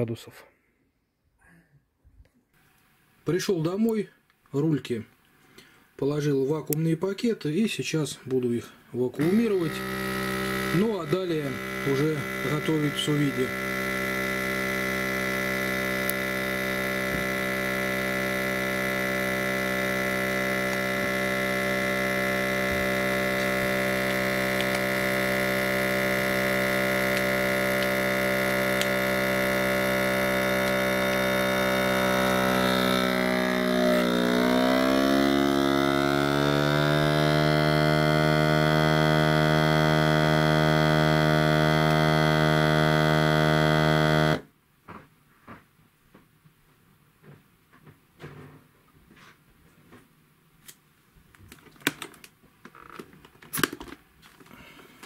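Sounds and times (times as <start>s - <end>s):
vacuum sealer pump humming: 9.0s - 44.5s, 54.4s - 55.0s.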